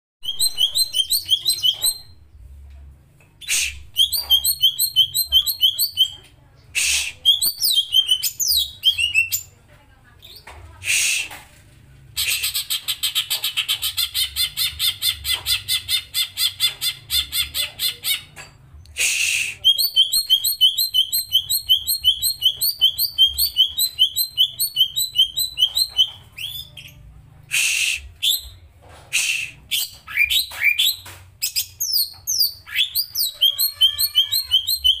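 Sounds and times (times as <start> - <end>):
short harsh bird notes: 3.4 - 4.6, 6.7 - 8.1, 29.1 - 30.8.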